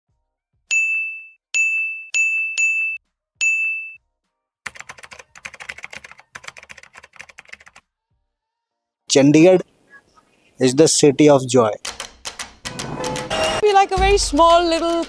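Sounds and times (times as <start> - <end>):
keyboard typing clicks: 4.7 - 7.8, 11.8 - 13.6.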